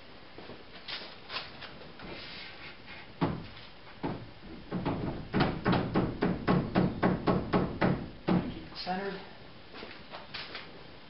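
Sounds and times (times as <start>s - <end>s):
hollow knocks and bumps: 3.2s - 8.6s.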